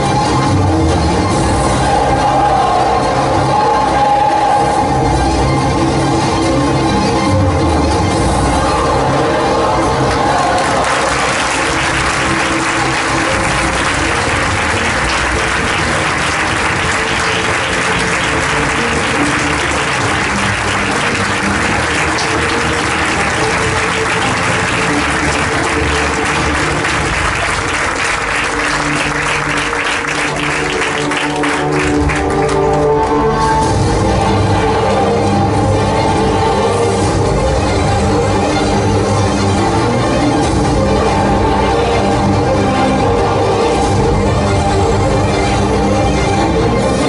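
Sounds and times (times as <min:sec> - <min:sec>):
music: 0:00.0 - 0:47.0
audience applauding: 0:09.1 - 0:33.5.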